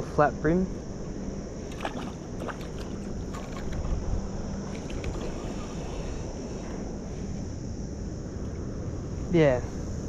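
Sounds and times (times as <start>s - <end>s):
wind on microphone: 0.7s - 10.0s
water sloshing: 1.6s - 5.7s
fish splashing: 1.7s - 3.9s.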